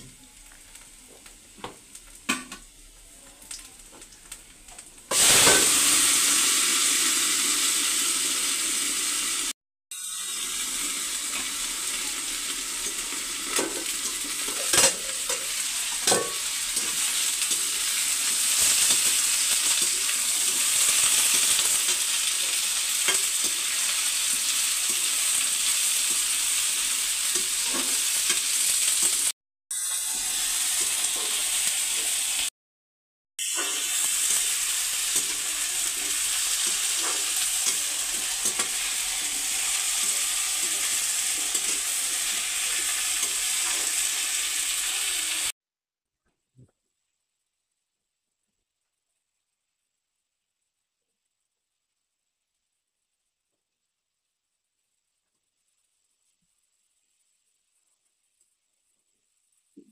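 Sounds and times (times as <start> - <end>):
vegetables sizzling in oil: 0.0 - 32.5, 33.4 - 45.5.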